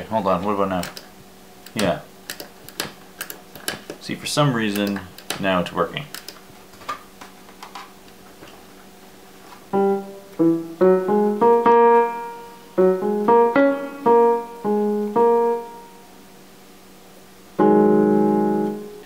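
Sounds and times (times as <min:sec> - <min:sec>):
electronic keyboard tune: 0:09.7 - 0:16.1, 0:17.6 - 0:19.0.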